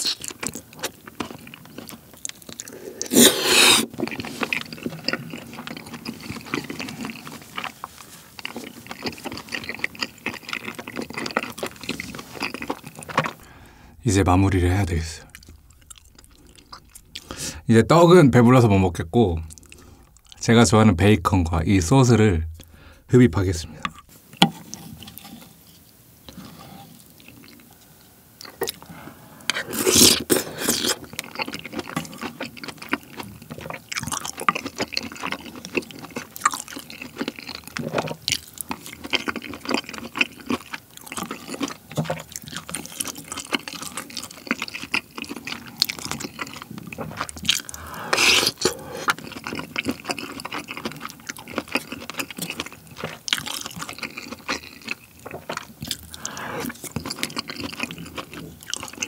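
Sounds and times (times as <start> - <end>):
wet chewing: 0.0 - 14.0, 15.2 - 17.6, 19.4 - 20.4, 28.4 - 59.0
slurping sauce: 2.6 - 13.9, 28.7 - 31.2, 46.4 - 50.8.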